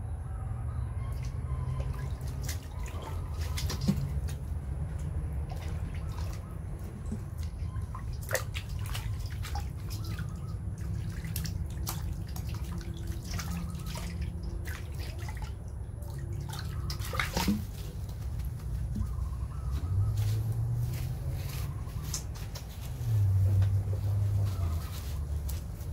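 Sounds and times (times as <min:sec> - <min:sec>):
low steady rumble: 0:00.0 - 0:25.9
water splashing in a metal basin: 0:01.1 - 0:19.1.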